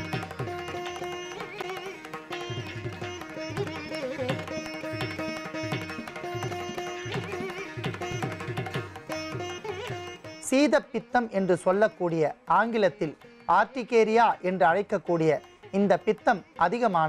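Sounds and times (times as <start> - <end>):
plucked string melody: 0.0 - 10.4.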